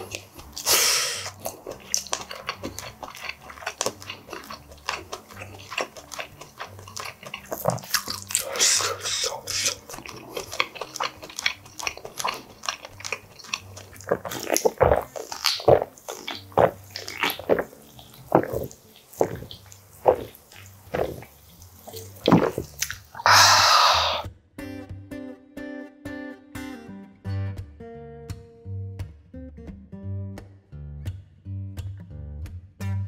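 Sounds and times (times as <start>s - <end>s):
chewing and wet mouth sounds: 0.0s - 24.2s
loud breathy exhale: 0.6s - 1.3s, 23.2s - 24.3s
person swallowing a drink: 11.8s - 24.3s.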